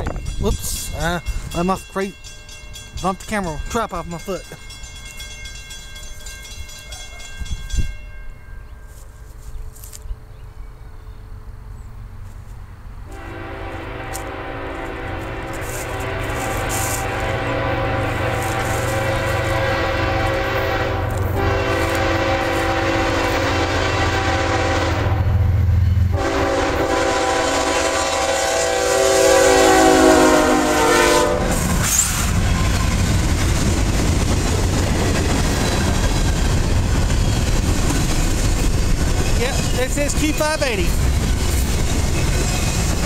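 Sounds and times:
locomotive air horn blasts: 13.1 - 31.8
train wheels clattering on rails: 31.6 - 43.0.

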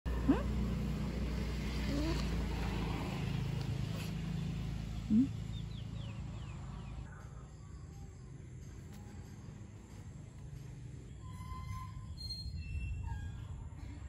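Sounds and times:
rising vocal squeak: 11.2 - 13.8.

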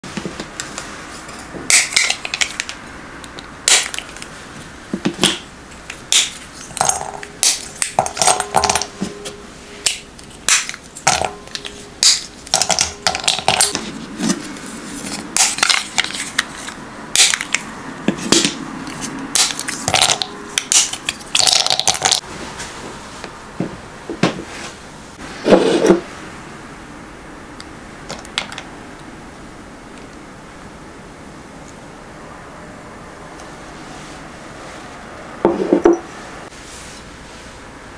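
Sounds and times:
chocolate bar snapping: 1.7 - 4.3, 17.2 - 17.6.

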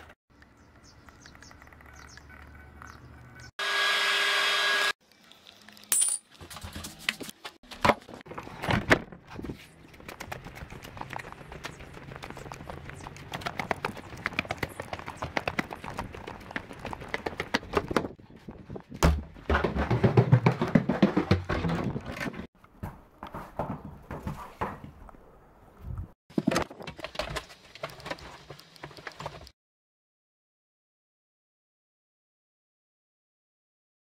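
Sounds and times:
clog footsteps on paving: 10.0 - 18.1
knocking and rustling: 18.9 - 25.0.

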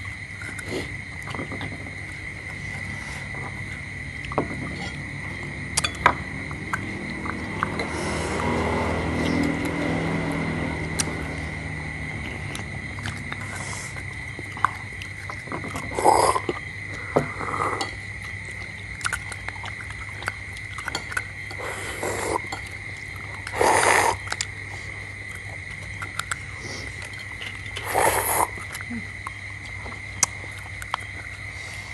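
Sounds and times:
low hum: 1.8 - 15.4
slurping and sucking: 6.6 - 11.6, 12.4 - 18.0, 20.6 - 25.6, 26.3 - 29.0.

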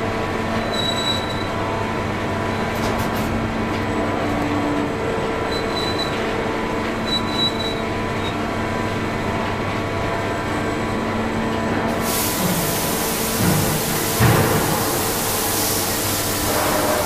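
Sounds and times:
forging press machinery hum: 0.0 - 17.0
high squeaks: 5.5 - 6.2.

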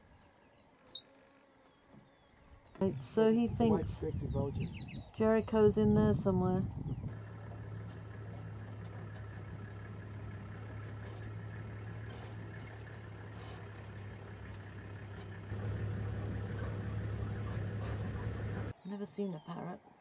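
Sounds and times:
vehicle engine idling: 6.6 - 18.7.

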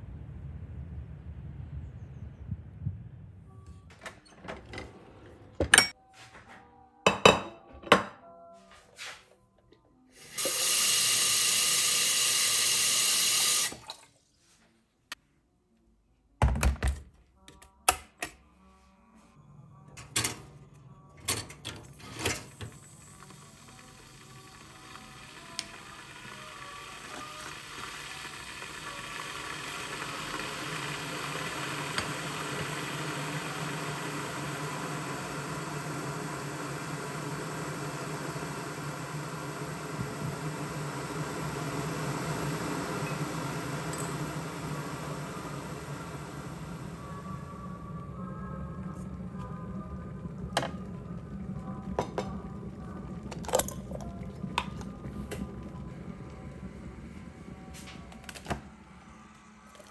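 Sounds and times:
low hum: 0.0 - 6.0, 18.4 - 59.9
kettle heating water: 10.1 - 14.1, 19.9 - 59.9.

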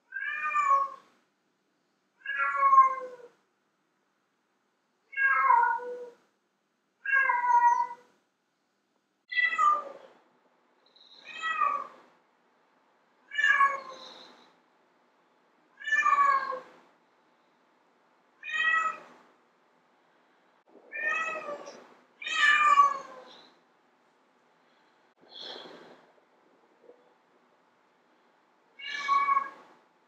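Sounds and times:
cat meowing: 0.1 - 1.1, 2.2 - 3.3, 5.1 - 6.2, 7.0 - 8.1, 9.3 - 10.0, 11.1 - 12.0, 13.3 - 14.4, 15.8 - 16.8, 18.4 - 19.1, 20.9 - 23.5, 28.8 - 29.7.

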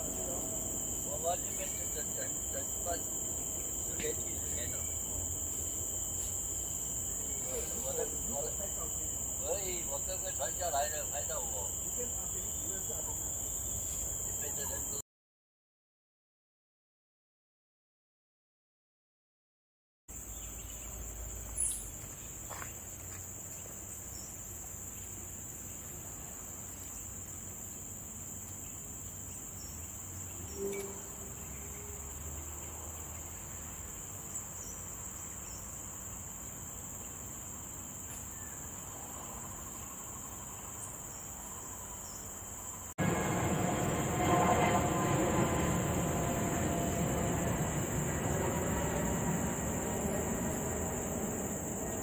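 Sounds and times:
insect chorus drone: 0.0 - 15.0, 20.1 - 52.0
rushing noise: 43.0 - 52.0.

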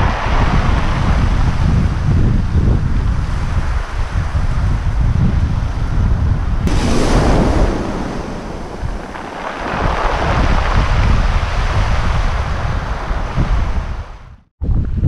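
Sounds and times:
wind buffeting microphone: 0.0 - 15.0
waves washing up pebble beach: 6.7 - 13.8.

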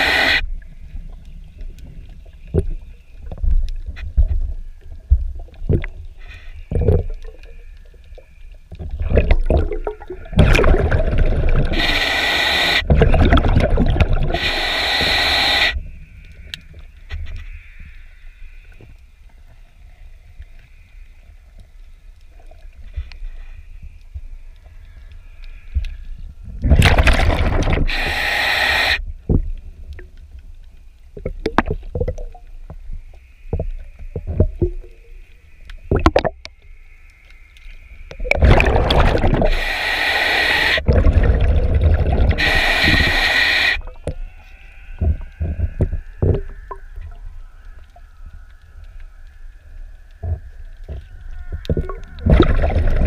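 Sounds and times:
rush of bubbles: 8.9 - 15.8, 26.6 - 28.4, 38.2 - 44.2, 51.7 - 53.0
diver breathing through regulator: 10.5 - 13.0, 14.1 - 15.8, 27.6 - 29.0, 38.5 - 43.9.

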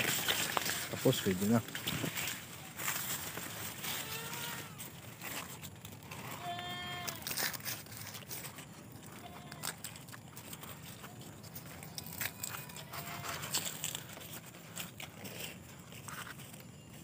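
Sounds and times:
farm animal bleating: 0.0 - 1.6, 3.8 - 5.2, 6.0 - 7.6, 8.9 - 10.3, 11.0 - 14.1
dry corn leaves rustling: 0.0 - 17.0.

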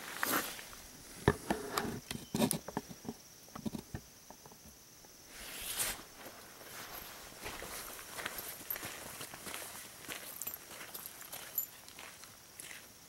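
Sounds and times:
clothing rustle: 5.3 - 9.0
footsteps on gravel: 6.0 - 12.9.

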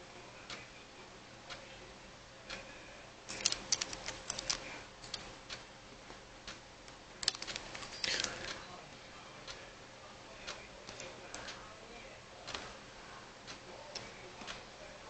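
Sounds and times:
regular ticking: 3.3 - 5.7, 6.4 - 8.6, 10.4 - 11.8.

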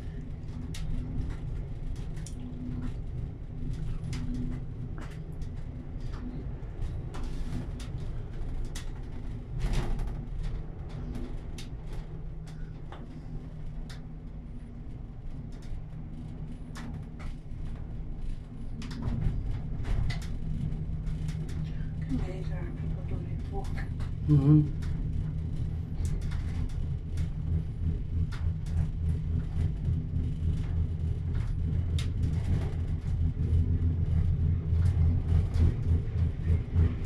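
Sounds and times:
cable car cabin rumble: 0.0 - 37.0
faint pulsing hum: 0.0 - 37.0.

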